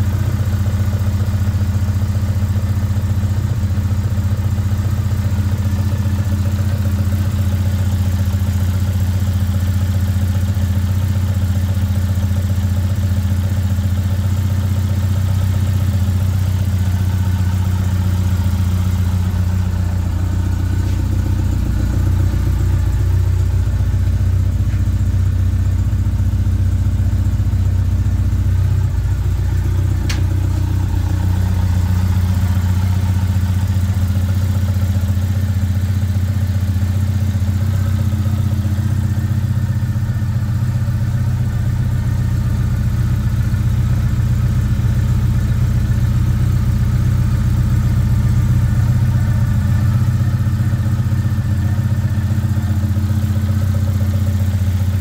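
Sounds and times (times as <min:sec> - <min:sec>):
car engine idling: 0:00.0 - 0:55.0.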